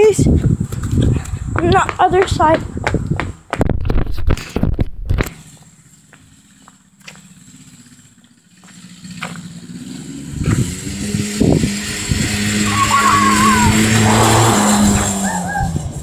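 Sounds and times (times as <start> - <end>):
microphone handling noise: 0.4 - 5.3
quad bike engine running: 5.2 - 16.0.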